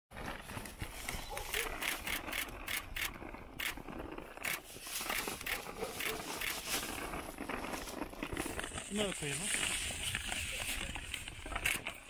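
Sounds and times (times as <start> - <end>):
footsteps crunching in snow: 0.2 - 2.4, 4.4 - 11.7.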